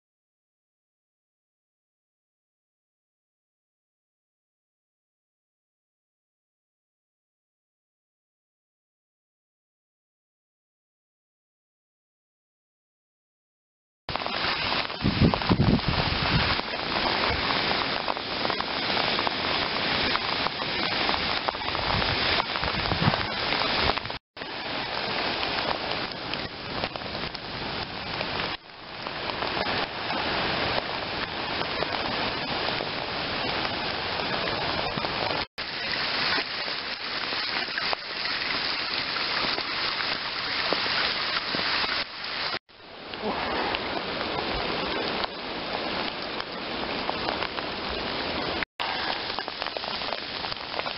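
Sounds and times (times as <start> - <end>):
heavy rain downpour: 14.1 - 50.9.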